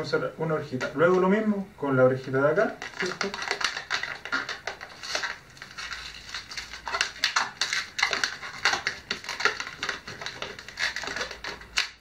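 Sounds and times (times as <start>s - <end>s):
balloon squeaking and rubbing: 2.8s - 12.0s.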